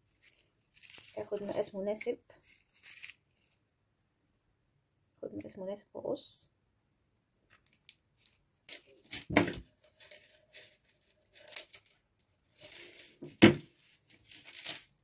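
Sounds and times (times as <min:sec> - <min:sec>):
rustling and scraping: 0:00.0 - 0:03.6, 0:07.5 - 0:15.0.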